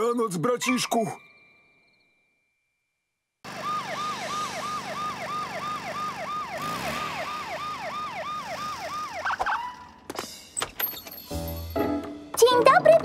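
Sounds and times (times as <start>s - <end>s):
cartoon police siren wailing: 3.5s - 10.0s.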